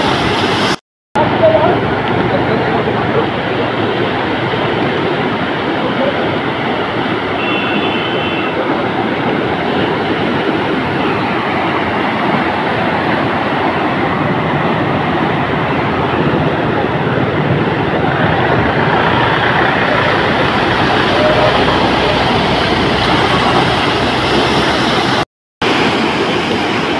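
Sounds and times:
bus running noise: 0.0 - 26.9
floodwater rushing and sloshing: 0.0 - 26.9
short high tone: 20.8 - 23.2.

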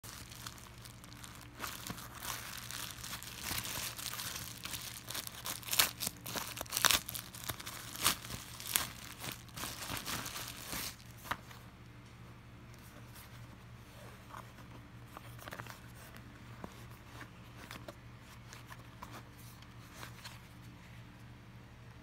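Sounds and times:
plastic ripping: 0.0 - 11.4
plastic mailer crinkling and rustling: 0.0 - 11.6.

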